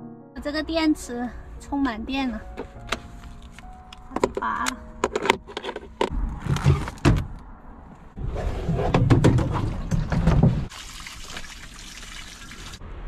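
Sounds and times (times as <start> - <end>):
plastic jug scraping and bumping: 8.2 - 10.7.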